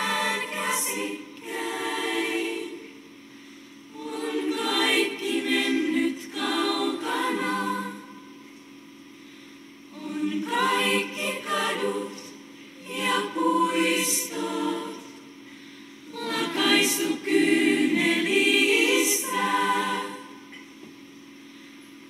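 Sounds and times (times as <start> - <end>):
girls' choir singing a cappella: 0.0 - 3.0, 3.9 - 8.2, 9.9 - 15.3, 16.1 - 20.6.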